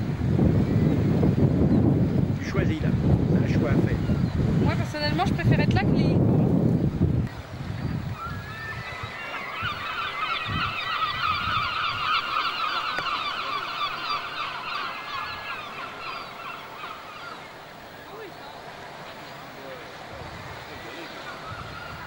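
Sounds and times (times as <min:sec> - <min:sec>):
flock of seabirds calling: 0:07.8 - 0:22.0.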